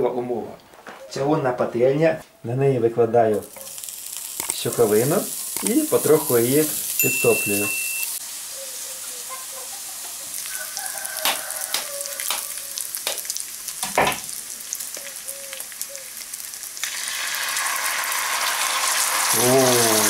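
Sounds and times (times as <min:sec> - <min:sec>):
sharp crackles: 0:03.4 - 0:08.2, 0:10.3 - 0:20.0
fat sizzling in a skillet: 0:03.4 - 0:20.0
egg cracked against pan: 0:03.5 - 0:04.8, 0:05.4 - 0:05.8, 0:11.2 - 0:14.3.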